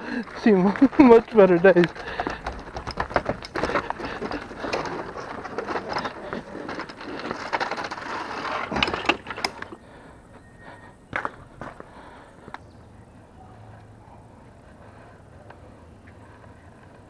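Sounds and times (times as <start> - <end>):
footsteps on wooden planks: 0.0 - 9.8, 11.1 - 12.6.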